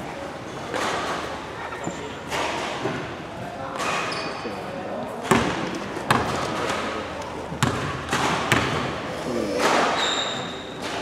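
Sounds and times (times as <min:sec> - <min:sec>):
echoing hall background noise: 0:00.0 - 0:11.0
basketball bouncing on hardwood floor: 0:05.3 - 0:06.4, 0:07.6 - 0:08.9
short high squeak: 0:10.0 - 0:10.8.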